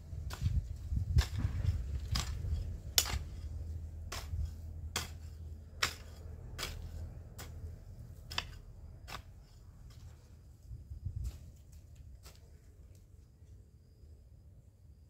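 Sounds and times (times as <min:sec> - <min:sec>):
hoe chopping into dry soil: 0:00.0 - 0:10.1.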